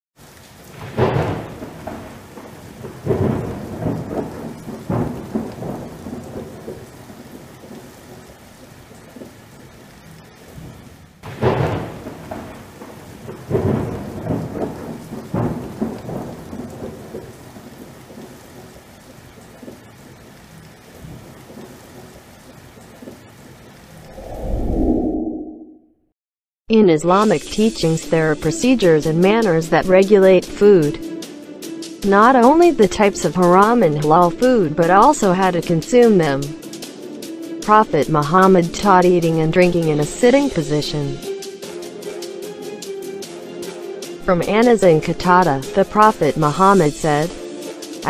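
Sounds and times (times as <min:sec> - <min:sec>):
thunderclap with rolling rumbles: 0:00.2 - 0:09.6, 0:10.5 - 0:23.2
rain hissing: 0:00.2 - 0:25.4, 0:27.1 - 0:48.0.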